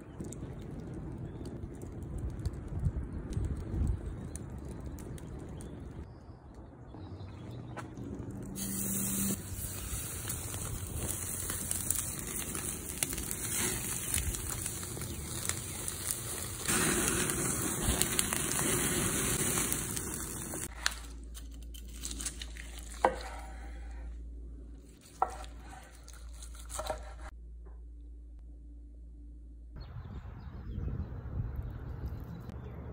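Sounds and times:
steaks sizzling on a grill: 0:08.6 - 0:20.7.

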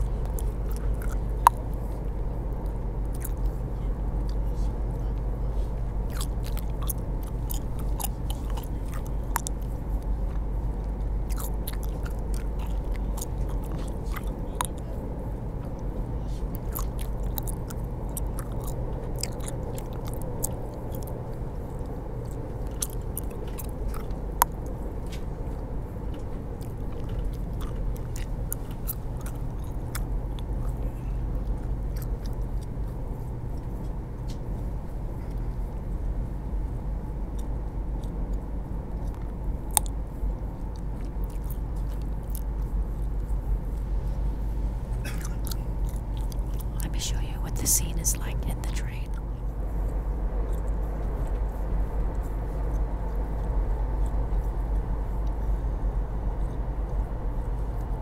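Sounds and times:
gum snaps: 0:00.0 - 0:04.5, 0:06.0 - 0:33.0, 0:37.3 - 0:43.9, 0:45.0 - 0:46.9
gum chewing clicks: 0:00.0 - 0:36.0, 0:37.0 - 0:58.0
train rumble: 0:00.0 - 0:58.0.

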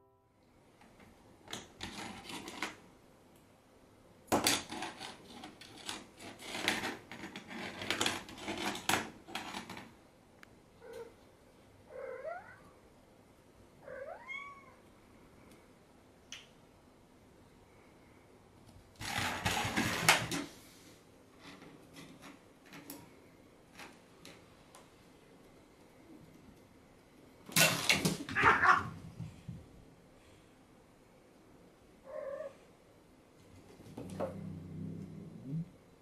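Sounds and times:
cat meowing: 0:11.9 - 0:12.7, 0:13.8 - 0:14.8, 0:28.3 - 0:29.0, 0:32.1 - 0:32.6
plastic toy clattering on wood floor: 0:27.5 - 0:28.8.

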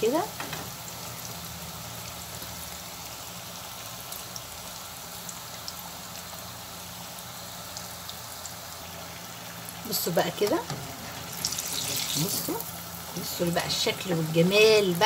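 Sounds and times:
cauliflower deep-frying in oil: 0:00.0 - 0:15.0
oil popping and crackling: 0:07.6 - 0:15.0.

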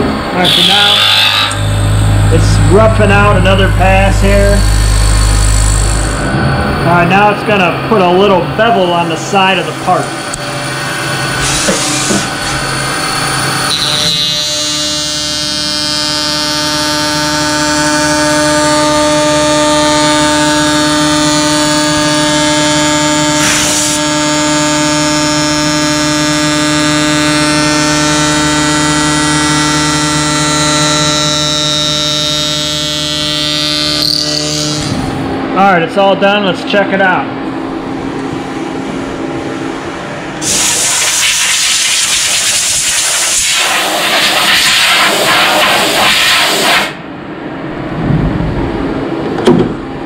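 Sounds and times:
milling machine spindle whine: 0:00.0 - 0:14.8, 0:15.4 - 0:35.6.

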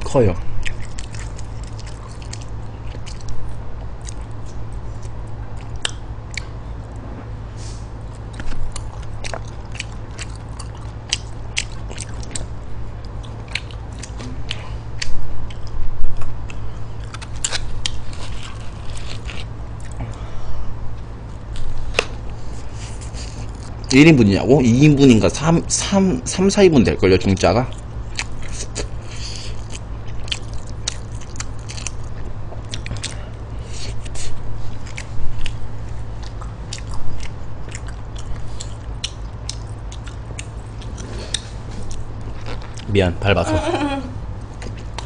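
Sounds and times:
steady low hum: 0:00.0 - 0:45.0
close chewing and biting: 0:00.6 - 0:06.6, 0:08.1 - 0:20.2, 0:21.4 - 0:24.0, 0:27.7 - 0:42.9, 0:44.5 - 0:45.0.

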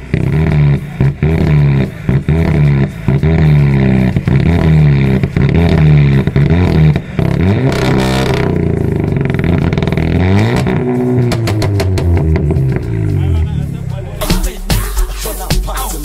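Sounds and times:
car engine revving: 0:00.0 - 0:16.0
exhaust cracks: 0:00.0 - 0:16.0.

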